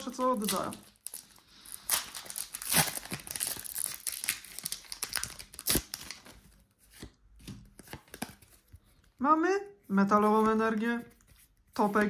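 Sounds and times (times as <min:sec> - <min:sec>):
foil wrapper tearing and crinkling: 0:00.0 - 0:06.4.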